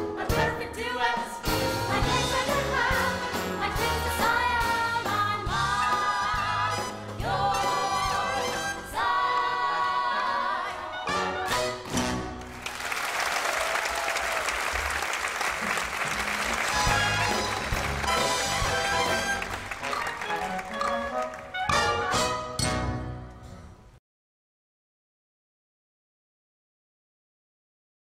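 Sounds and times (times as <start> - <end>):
audience applause: 12.4 - 21.7.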